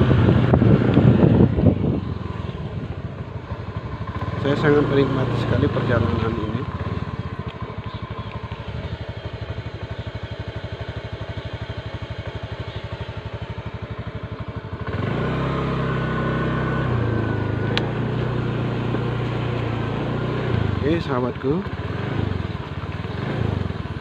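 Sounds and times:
small motorcycle engine: 0.0s - 24.0s.

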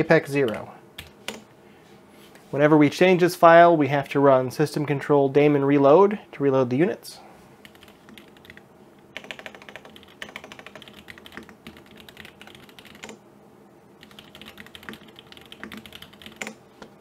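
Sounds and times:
computer keyboard typing: 0.4s - 1.4s, 7.6s - 8.6s, 9.2s - 13.2s, 14.0s - 16.6s.

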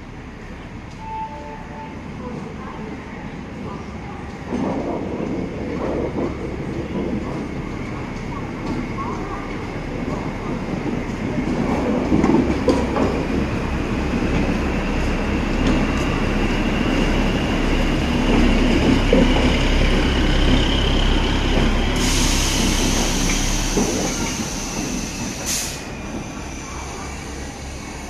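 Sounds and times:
rail car rumbling past: 0.0s - 28.0s
hiss: 21.9s - 25.9s.

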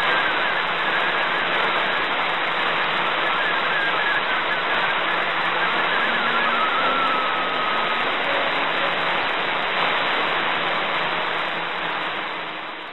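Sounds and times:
radio static hiss: 0.0s - 12.9s
faint whistle: 3.2s - 9.0s.

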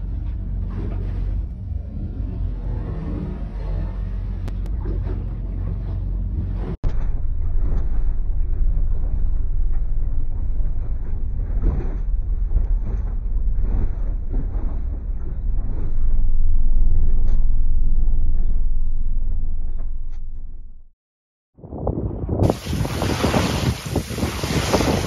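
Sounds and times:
water rushing along hull: 0.0s - 17.1s, 22.4s - 25.0s
outboard motor droning: 0.0s - 19.0s, 22.5s - 25.0s.

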